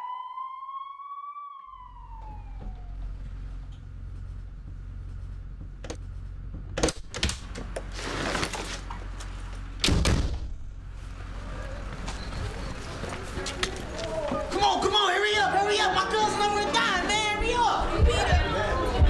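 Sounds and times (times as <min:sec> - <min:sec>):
ambulance siren wailing: 0:00.0 - 0:03.6
low engine rumble: 0:01.7 - 0:14.5.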